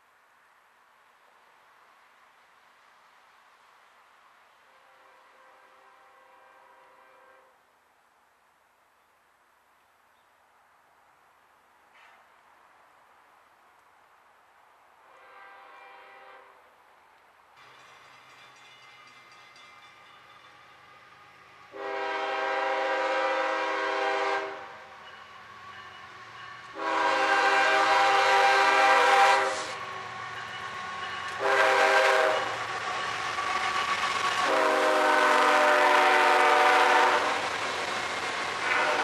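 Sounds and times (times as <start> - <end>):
locomotive air horn blasts: 4.7 - 7.6, 15.1 - 16.6, 21.7 - 24.8, 26.7 - 29.8, 31.3 - 32.6, 34.4 - 37.5, 38.6 - 39.0
diesel locomotive engines: 15.0 - 39.0
train wheels passing: 17.5 - 39.0.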